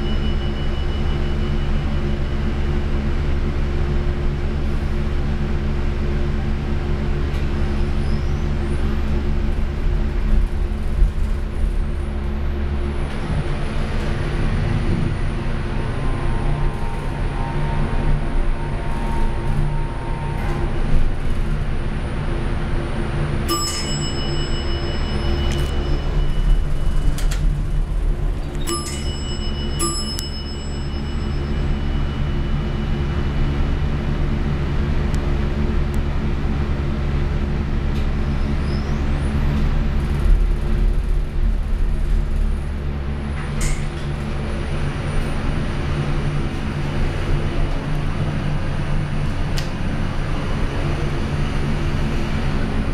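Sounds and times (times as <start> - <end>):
elevator bell ringing: 0.0 - 3.1, 23.4 - 33.9
low machine hum: 0.0 - 52.9.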